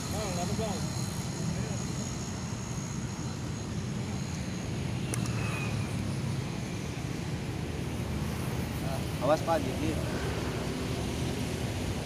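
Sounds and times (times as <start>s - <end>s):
sharp click: 5.1s - 5.4s.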